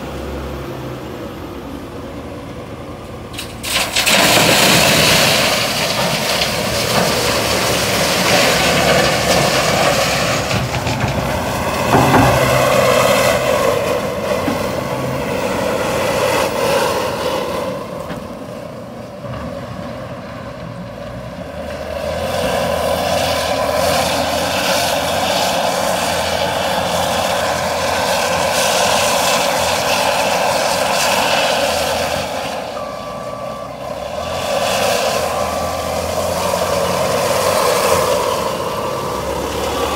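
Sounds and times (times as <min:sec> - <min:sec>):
wheel loader diesel engine: 0:00.0 - 0:39.9
gravel pouring into trailer: 0:03.4 - 0:17.2.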